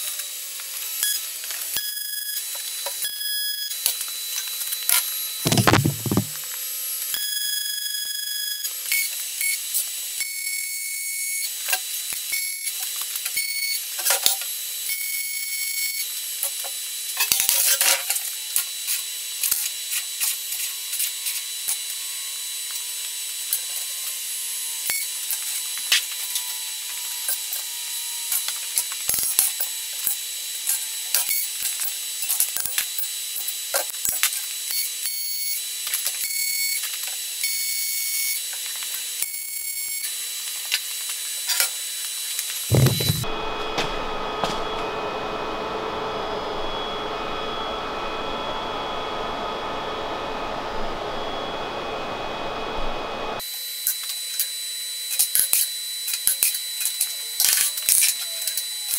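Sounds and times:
sharp knocks: 5.5s - 6.4s, 42.7s - 43.3s.

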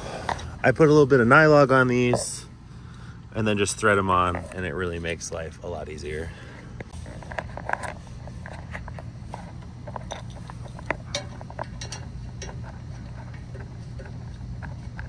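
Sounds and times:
steady low hum: 0.0s - 15.0s
metal fitting clicks and clinks: 10.0s - 12.6s.

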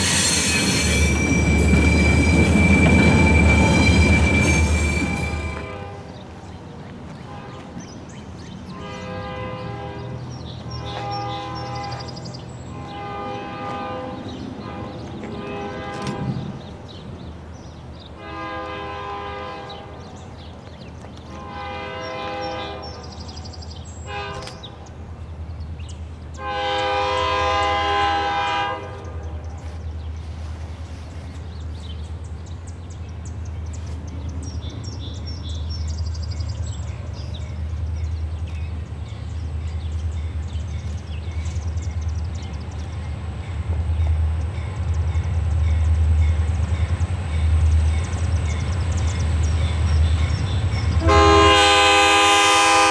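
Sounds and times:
locomotive air horn blasts: 0.0s - 6.2s, 7.3s - 7.8s, 8.7s - 16.5s, 18.2s - 20.0s, 21.3s - 23.1s, 24.0s - 24.7s, 26.3s - 29.6s, 51.0s - 52.9s.

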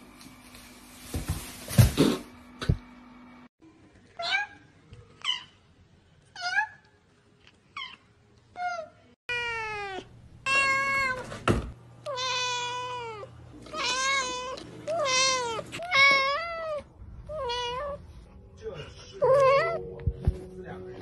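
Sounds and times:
cat meowing: 8.6s - 11.2s, 12.1s - 18.0s, 19.2s - 19.8s.

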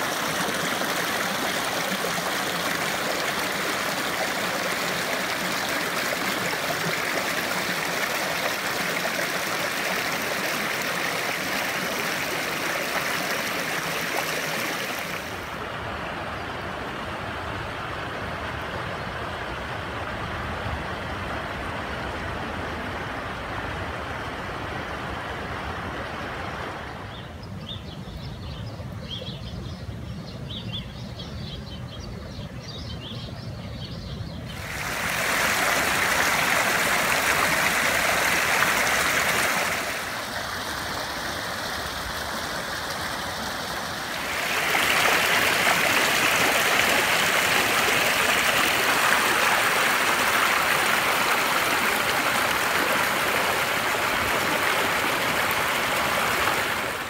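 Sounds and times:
water rushing over rocks: 0.0s - 16.2s, 34.5s - 57.0s.

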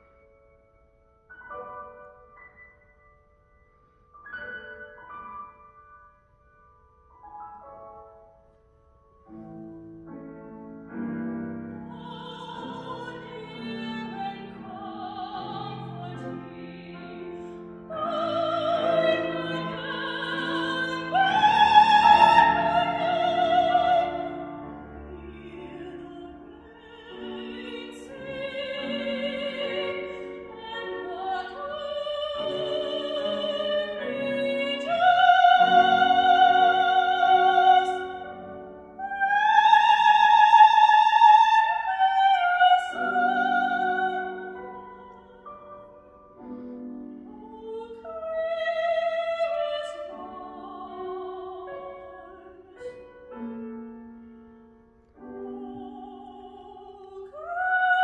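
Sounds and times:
grand piano accompaniment: 0.0s - 58.0s
woman singing operatically: 11.8s - 38.3s, 39.0s - 45.5s, 47.3s - 52.8s, 55.4s - 58.0s.

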